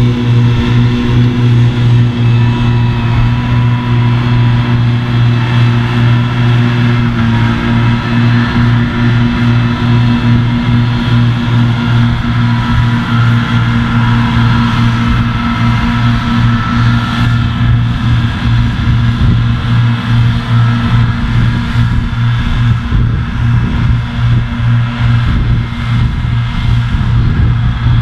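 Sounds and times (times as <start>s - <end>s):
tractor engine droning under load: 0.0s - 28.0s.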